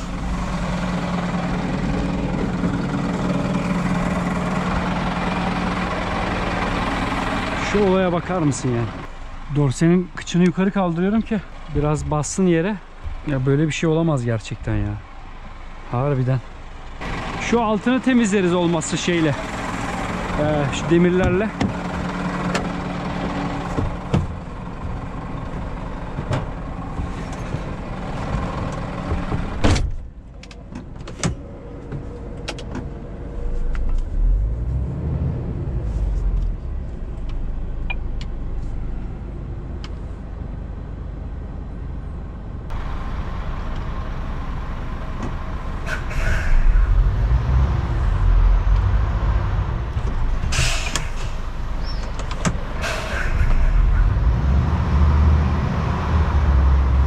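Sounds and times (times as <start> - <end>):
diesel truck engine idling: 0.0 - 29.6, 40.5 - 57.0
short hiss: 50.5 - 51.6, 52.8 - 53.8.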